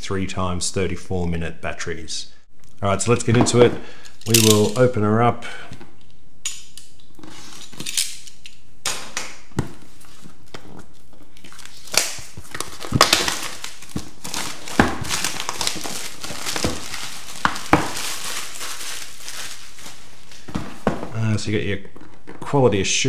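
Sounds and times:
plastic shrink wrap crinkling: 9.8s - 21.2s.

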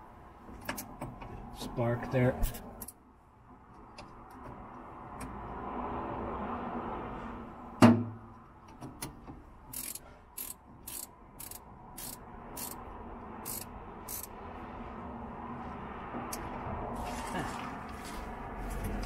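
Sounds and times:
sharp metallic clicks: 8.6s - 14.4s.

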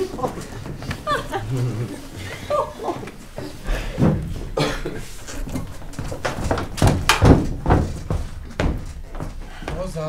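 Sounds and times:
metal ladder knocking and clattering: 4.0s - 9.3s.

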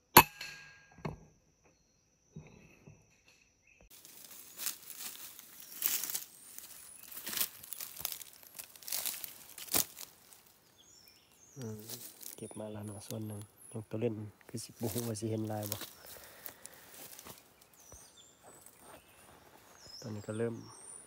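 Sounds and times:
footsteps crunching through leaves: 3.9s - 13.5s, 14.6s - 20.1s.

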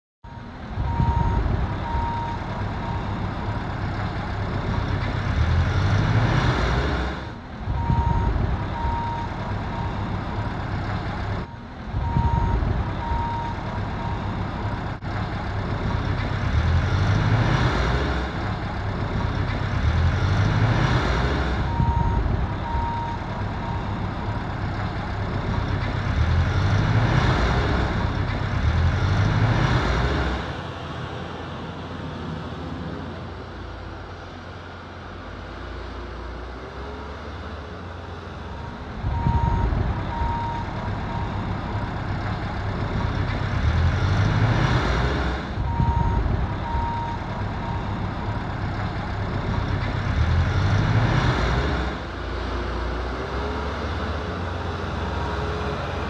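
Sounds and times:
reversing alarm beeps: 0.2s - 3.2s, 7.8s - 10.1s, 11.4s - 14.4s, 21.7s - 24.0s, 38.6s - 41.5s, 45.7s - 48.0s
diesel engines revving: 0.2s - 56.0s.

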